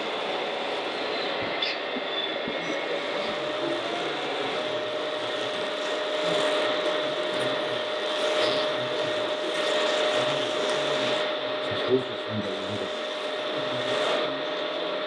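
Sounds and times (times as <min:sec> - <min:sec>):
small electric motors whining: 0:00.0 - 0:15.0
steady mechanical hum: 0:00.0 - 0:15.0.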